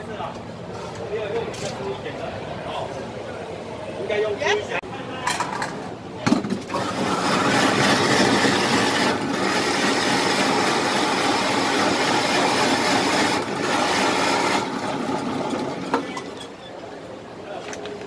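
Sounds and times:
ice shaving machine scraping ice: 6.7s - 16.5s.

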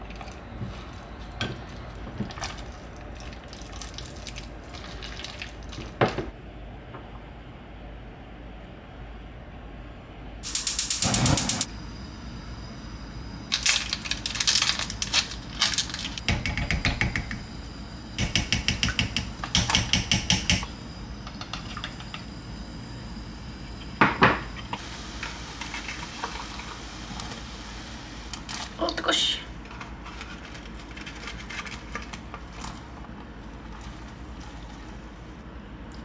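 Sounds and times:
utensil rapid clicking: 10.4s - 11.7s.

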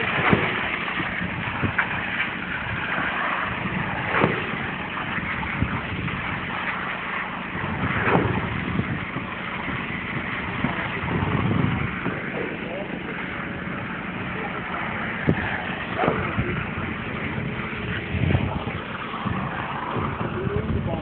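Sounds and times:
concrete pump running: 0.0s - 21.0s.

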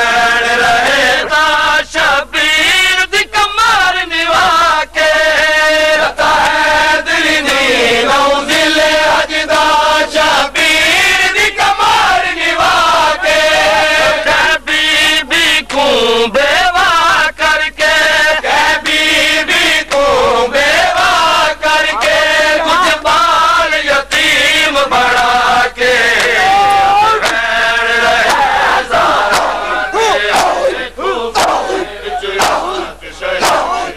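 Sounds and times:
men chanting a lament: 0.0s - 33.9s
chest-beating slaps: 28.2s - 28.5s, 29.1s - 30.7s, 31.4s - 31.8s, 32.4s - 32.8s, 33.4s - 33.8s.

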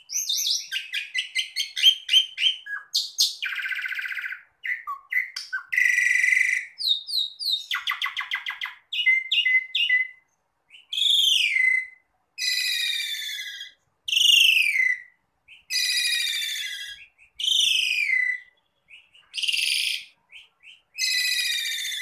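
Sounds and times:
bird chirps: 0.0s - 22.0s
starling whistled song: 0.0s - 22.0s
harsh rasping bird call: 10.8s - 22.0s.

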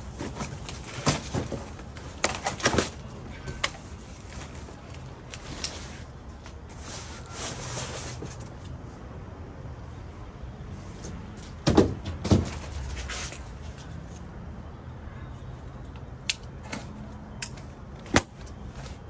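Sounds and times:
cardboard rustling and scraping: 0.0s - 8.6s, 11.4s - 13.8s
boxes thumping on concrete: 11.6s - 12.8s.

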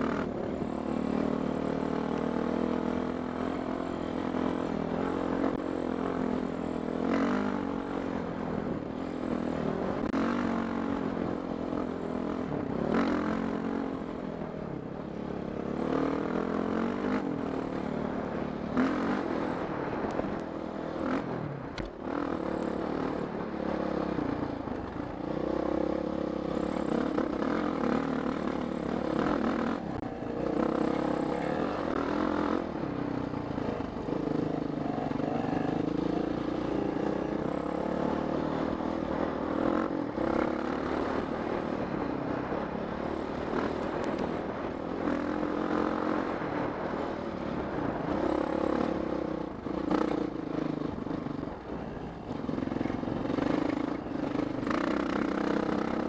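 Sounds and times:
dirt bike engine revving: 0.0s - 14.1s, 15.1s - 51.2s, 52.4s - 56.0s.

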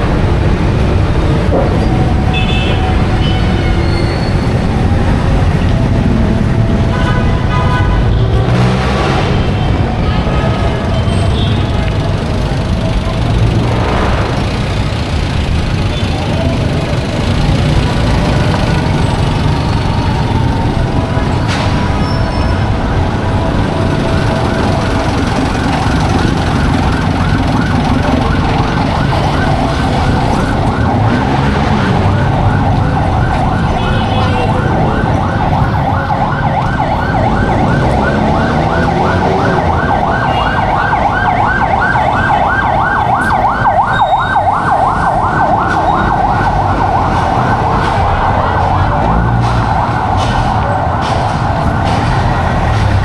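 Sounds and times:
street traffic rumble: 0.0s - 53.0s
siren yelping: 16.0s - 52.8s.

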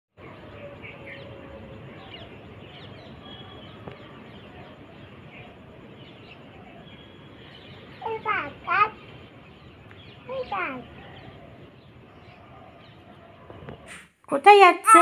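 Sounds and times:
steady background hiss: 0.2s - 12.2s
faint bird chirps: 0.2s - 14.0s.

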